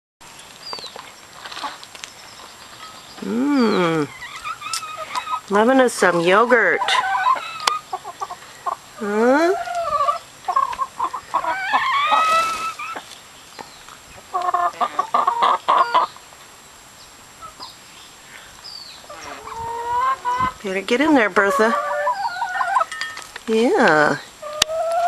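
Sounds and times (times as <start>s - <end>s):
hens clucking: 3.2s - 13.2s, 14.2s - 16.2s, 19.0s - 22.9s, 24.4s - 25.0s.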